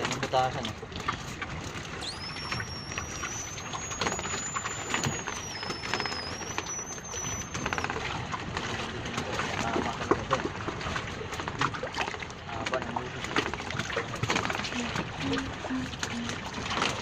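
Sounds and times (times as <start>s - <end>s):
water and wind noise: 0.0s - 17.0s
thin high whistling tone: 2.0s - 8.0s
fish and trap knocking in boat: 3.9s - 15.2s.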